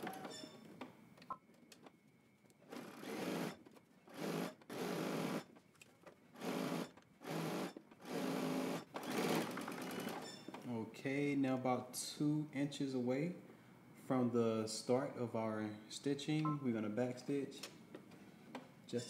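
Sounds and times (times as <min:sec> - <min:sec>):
sewing machine stitching: 0:02.7 - 0:05.5, 0:06.4 - 0:10.2.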